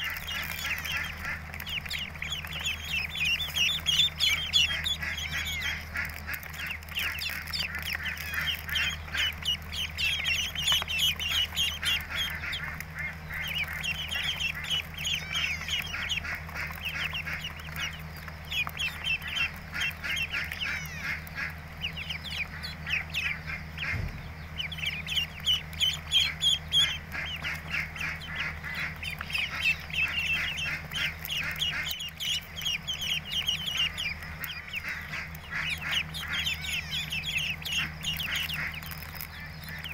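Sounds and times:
ducklings peeping: 0:00.0 - 0:39.9
steady low hum: 0:00.0 - 0:39.9
low thump: 0:23.8 - 0:24.4.

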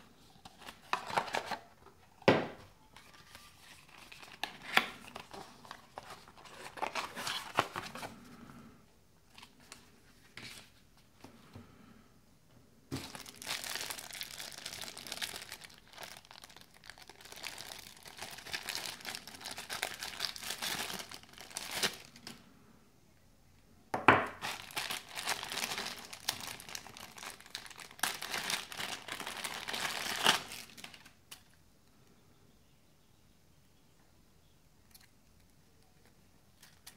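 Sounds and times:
plastic bag crinkling: 0:02.9 - 0:08.2, 0:12.9 - 0:22.4, 0:24.4 - 0:31.5.

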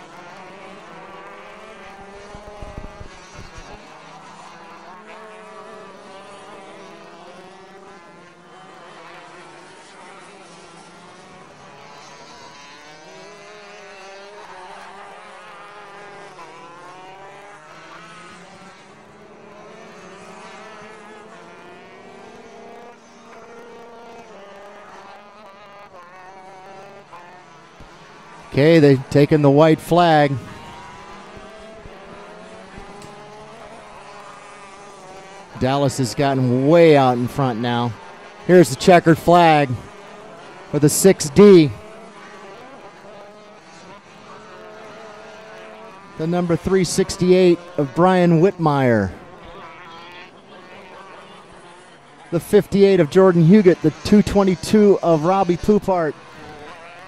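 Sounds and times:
kart engines buzzing: 0:00.0 - 0:57.0.

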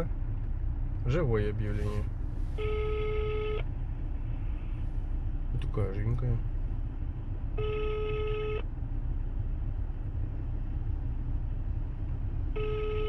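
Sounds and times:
low rumble: 0:00.0 - 0:13.0
telephone ringback beeps: 0:12.6 - 0:13.0.

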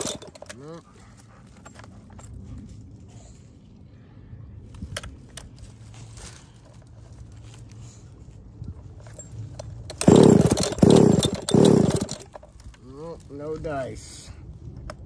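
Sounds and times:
hands handling chainsaw: 0:00.0 - 0:02.3, 0:08.9 - 0:13.7
low hum: 0:00.0 - 0:12.8.

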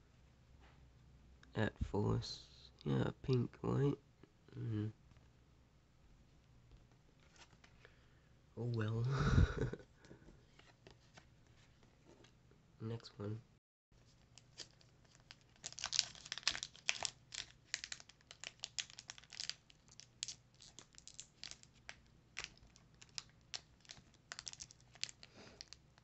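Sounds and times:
foil wrapper crinkling and tearing: 0:14.2 - 0:26.0.

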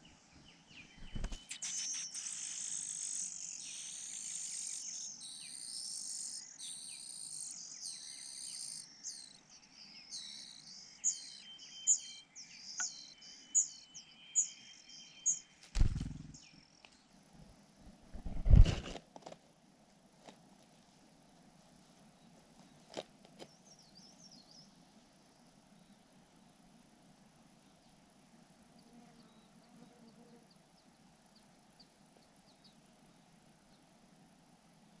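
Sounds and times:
nestlings begging chorus: 0:01.2 - 0:09.4.

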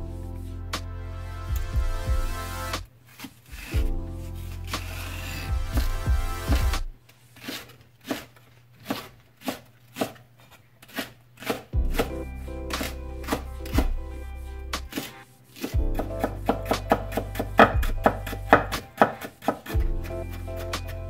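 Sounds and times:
knife chopping on wooden board: 0:14.9 - 0:19.8.

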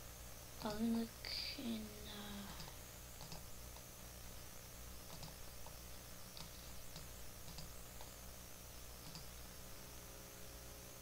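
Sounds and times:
low hum: 0:00.0 - 0:11.0
mouse and keyboard clicks: 0:02.6 - 0:03.9, 0:05.1 - 0:08.1, 0:09.0 - 0:09.3.

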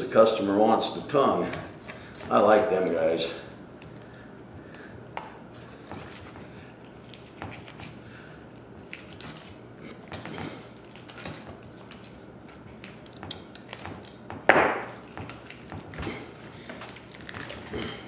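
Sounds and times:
knife cutting meat: 0:05.6 - 0:14.3.

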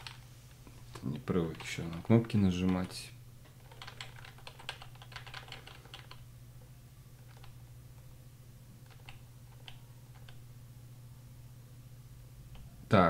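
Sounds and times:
steady low hum: 0:00.0 - 0:13.0
computer keyboard keystrokes: 0:01.0 - 0:06.2, 0:07.2 - 0:07.6, 0:08.8 - 0:10.4.

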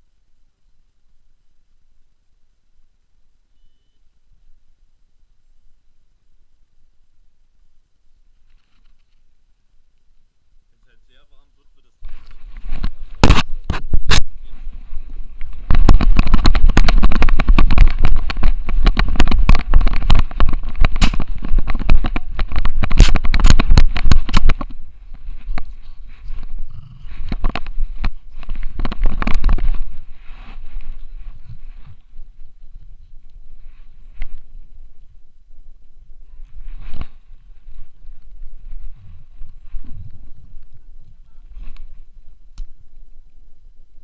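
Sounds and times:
knocking and scraping on camera: 0:12.0 - 0:14.4, 0:15.4 - 0:32.0.

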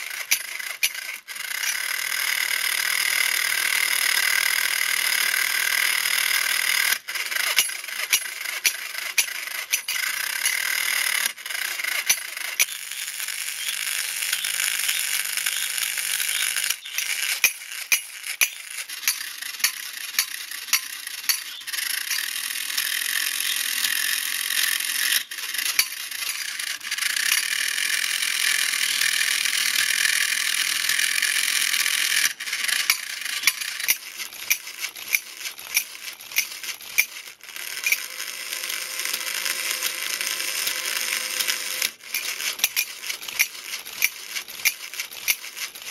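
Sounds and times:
toy motor whirring: 0:00.0 - 0:45.9
metallic clicks and rattles: 0:06.9 - 0:27.6, 0:32.0 - 0:40.0, 0:40.7 - 0:45.9.

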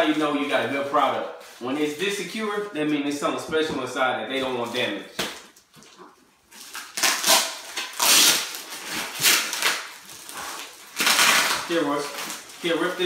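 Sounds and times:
plastic wrapping crinkling: 0:04.6 - 0:13.0.

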